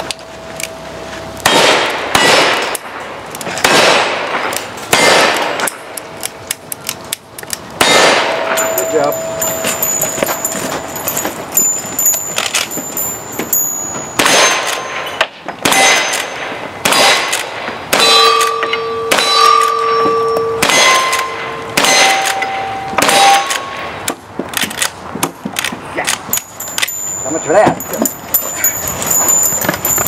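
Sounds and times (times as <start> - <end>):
rifle shots: 1.4 - 2.8, 3.6 - 5.8, 7.8 - 8.6, 15.6 - 18.5, 20.6 - 23.8
steel target ringing clang: 7.8 - 16.7, 17.9 - 24.0.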